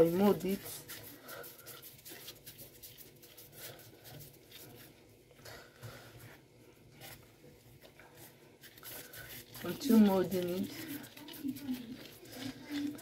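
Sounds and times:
plastic gloves rustling: 0.0 - 13.0.

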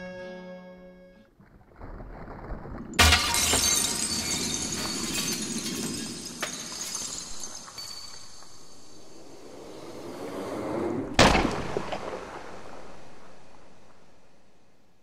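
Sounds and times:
glass shards clinking: 3.0 - 8.8
glass breaking: 3.0 - 9.0.

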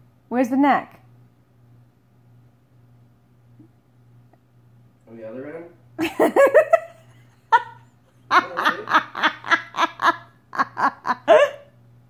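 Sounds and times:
person laughing hard: 6.0 - 11.7.

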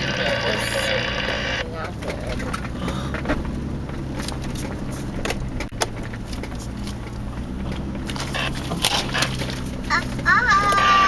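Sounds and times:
truck engine running: 0.0 - 11.0
body clicking and rattling: 1.6 - 11.0.

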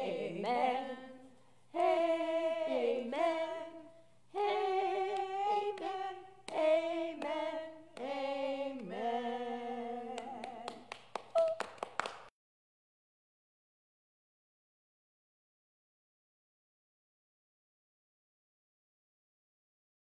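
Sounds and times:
women singing unaccompanied: 0.0 - 11.6
people clapping: 5.0 - 9.0, 10.1 - 12.3.

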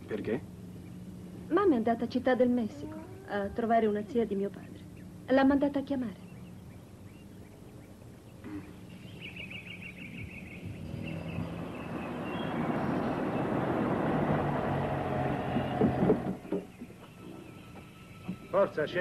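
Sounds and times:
car engine: 10.5 - 16.6
tyres on rough ground: 10.6 - 18.8
short knocks: 15.3 - 17.0.

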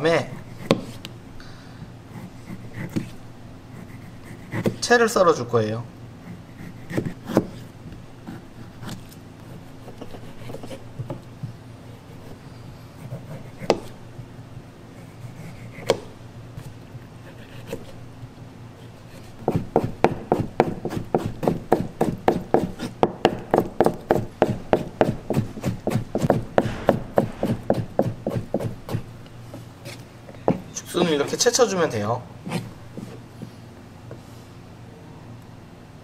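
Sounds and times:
knife cutting on cutting board: 24.8 - 29.0.

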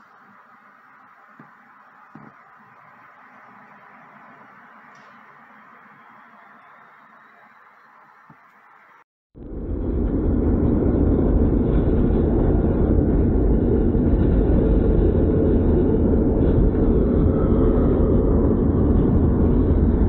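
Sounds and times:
car road and wind noise: 0.0 - 20.0.

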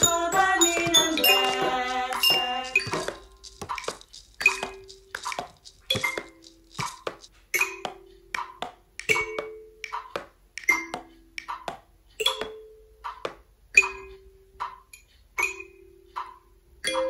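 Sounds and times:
knocks on cup and wooden spoons: 0.0 - 8.0.

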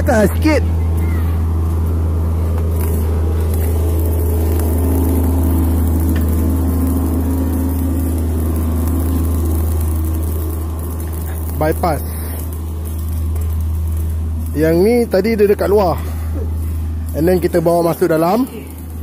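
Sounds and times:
machinery droning: 0.0 - 19.0.

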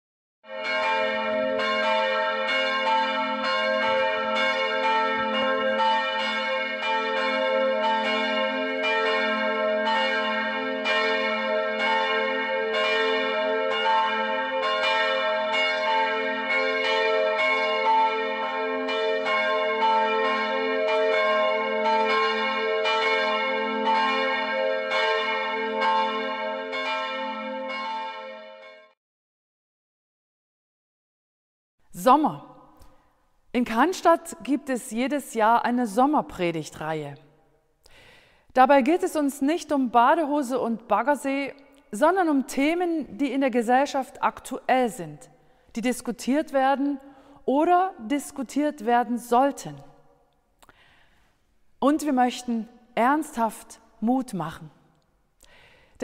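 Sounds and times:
church bells pealing: 0.5 - 29.0.

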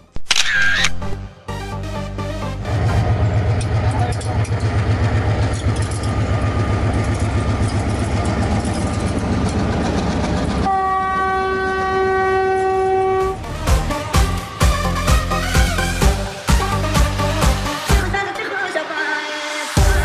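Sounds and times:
diesel locomotive rumbling past: 2.6 - 15.0
train horn blast: 10.6 - 14.0.

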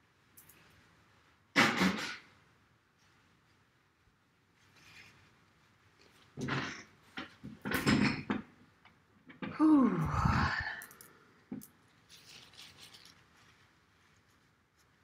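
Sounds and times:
rustling and bumps of office chair: 6.2 - 8.6
woman sighing: 9.5 - 11.1.

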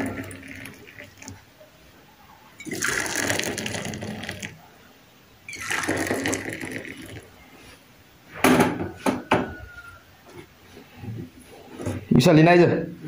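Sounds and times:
tea pouring into metal mugs: 0.0 - 1.4, 2.6 - 4.6, 5.5 - 7.5.

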